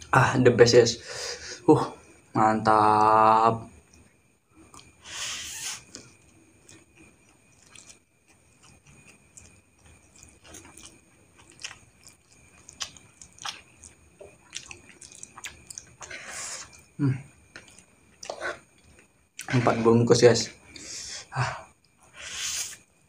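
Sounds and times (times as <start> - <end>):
person chewing noodles: 3.8 - 19.6
loud slurping: 5.0 - 6.0.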